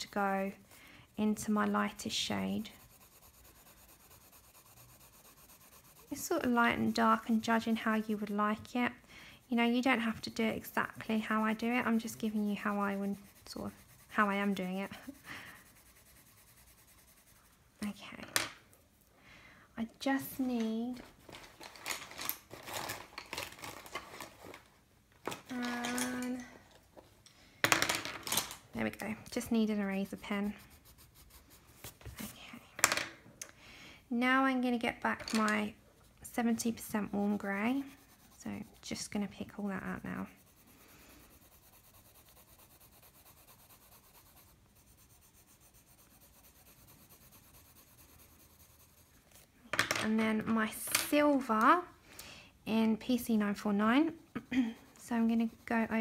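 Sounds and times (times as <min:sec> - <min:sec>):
coloured pencil scratching on paper: 0:00.0 - 0:18.0, 0:28.8 - 0:32.5, 0:36.0 - 0:49.5, 0:53.0 - 0:56.0
pens and pencils rustling: 0:20.9 - 0:27.2.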